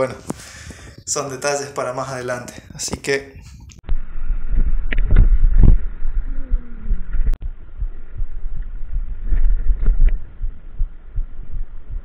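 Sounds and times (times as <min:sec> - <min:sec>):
wind buffeting: 0:02.2 - 0:12.0
bicycle road rumble: 0:03.9 - 0:12.0
low thumps from bumps: 0:03.9 - 0:12.0.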